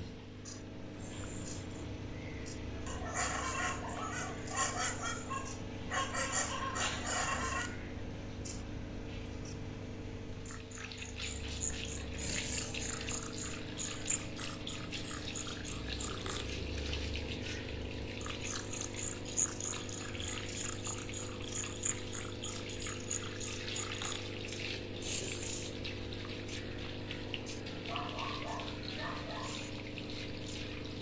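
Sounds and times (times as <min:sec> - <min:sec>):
steady low hum: 0:00.0 - 0:31.0
hose water splashing on dog: 0:10.4 - 0:31.0.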